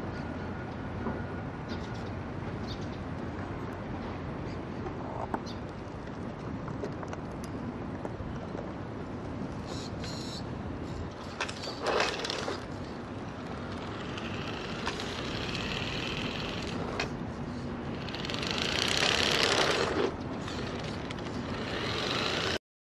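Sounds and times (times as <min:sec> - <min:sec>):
electric motor whining: 0:13.6 - 0:17.1, 0:17.9 - 0:22.6.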